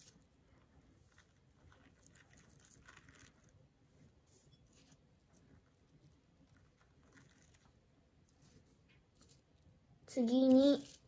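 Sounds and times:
guinea pig crunching food: 0:00.0 - 0:03.7, 0:05.2 - 0:08.4.

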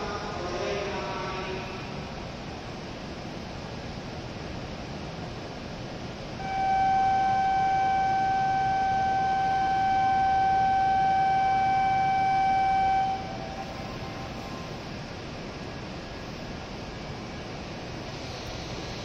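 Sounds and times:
background hiss: 0:00.0 - 0:19.0
electronic departure buzzer tone: 0:06.4 - 0:14.8.

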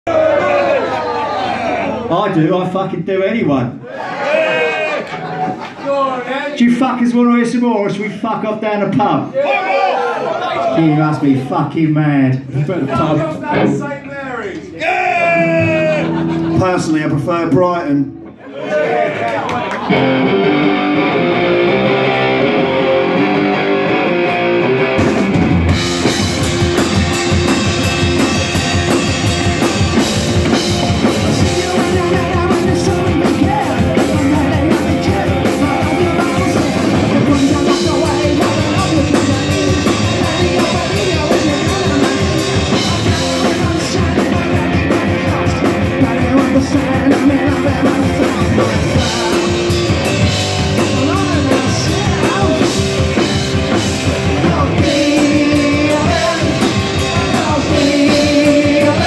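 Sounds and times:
punk rock band playing: 0:05.0 - 0:05.8, 0:12.6 - 0:14.1, 0:14.9 - 0:18.4, 0:19.6 - 0:59.0
electric guitar: 0:19.4 - 0:59.0
person singing lead vocals: 0:30.0 - 0:59.0.

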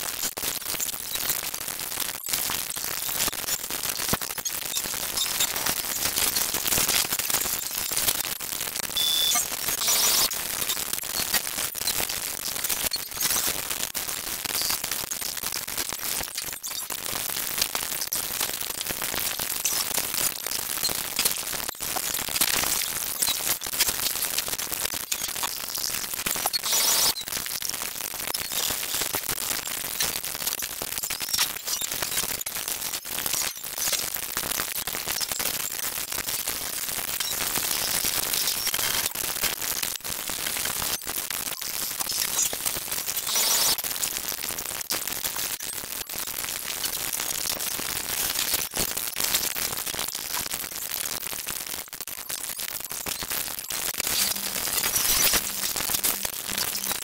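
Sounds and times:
sped-up soundtrack hiss: 0:53.7 - 0:57.0.

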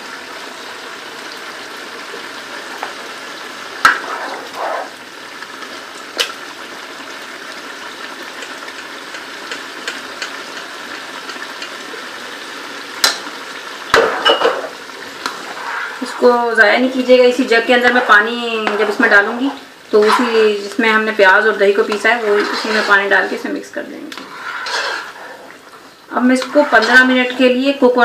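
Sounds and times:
chicken sizzling in a pot: 0:00.0 - 0:28.0
spoon scraping: 0:22.0 - 0:23.4, 0:24.2 - 0:25.6, 0:26.4 - 0:27.2.

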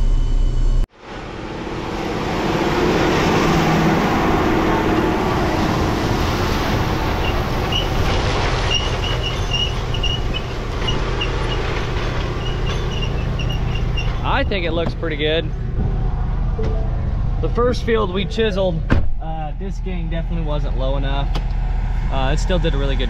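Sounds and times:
tractor engine under load: 0:04.1 - 0:17.5.

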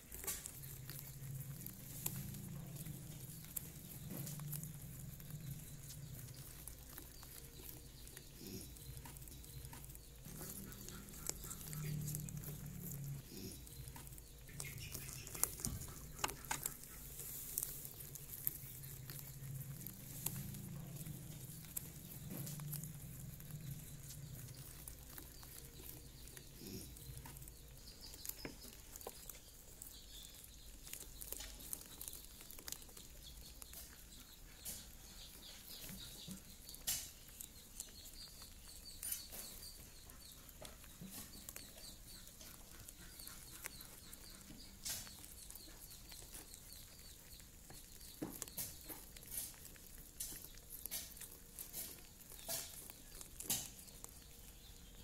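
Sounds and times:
rabbits nibbling corn: 0:00.0 - 0:55.0.

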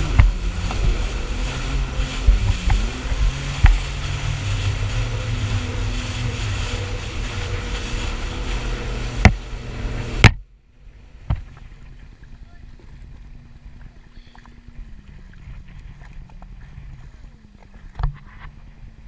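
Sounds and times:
rushing spray: 0:00.0 - 0:10.3
wind noise on microphone: 0:00.0 - 0:10.4, 0:14.6 - 0:19.0
hull slapping water: 0:00.0 - 0:19.0
jet ski engine running: 0:00.0 - 0:19.0.

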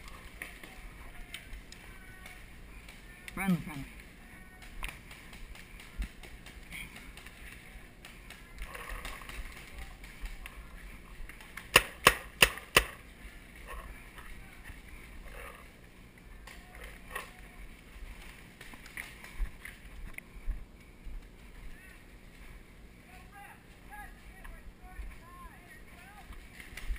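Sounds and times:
paintball marker shots: 0:11.6 - 0:13.0.

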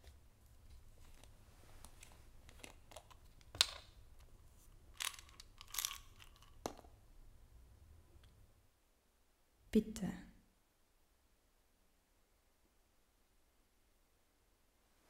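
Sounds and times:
crinkling and rustling in hands: 0:00.0 - 0:07.1
faint low room hum: 0:00.0 - 0:15.0.

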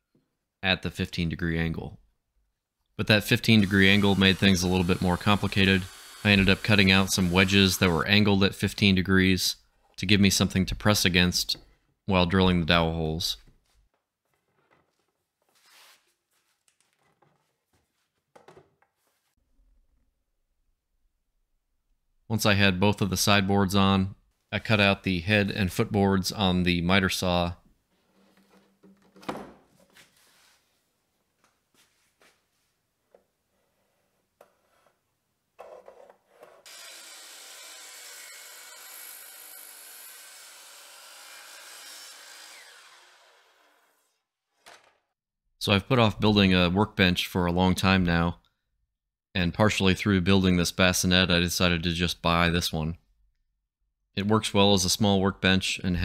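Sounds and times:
miter saw cutting wood: 0:03.4 - 0:08.3, 0:36.6 - 0:44.2.

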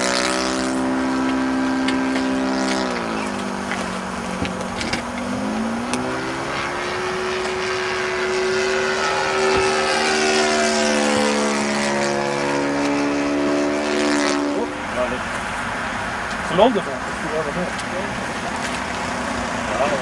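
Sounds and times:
model plane engine and propeller: 0:00.0 - 0:13.2.

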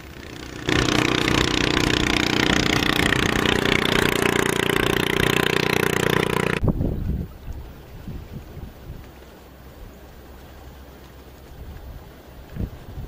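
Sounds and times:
boat engine droning: 0:00.0 - 0:06.6.

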